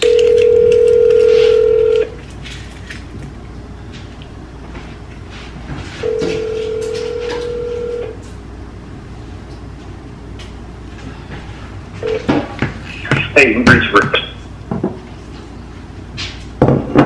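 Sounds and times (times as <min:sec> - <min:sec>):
phone electronic tone: 0:00.0 - 0:02.2, 0:06.0 - 0:08.2, 0:12.0 - 0:12.3.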